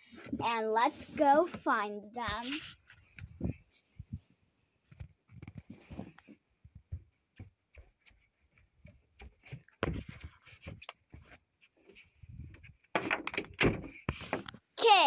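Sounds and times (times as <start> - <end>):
knocks and thumps of handling: 4.9 - 14.6
door opening: 13.0 - 14.0.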